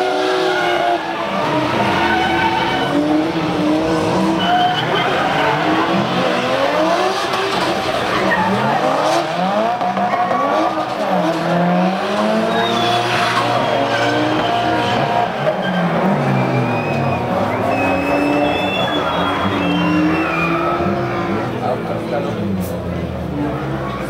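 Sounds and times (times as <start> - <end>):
car engines revving hard: 0.0 - 24.0
tyres squealing: 0.5 - 3.3, 4.1 - 6.6, 12.4 - 21.4.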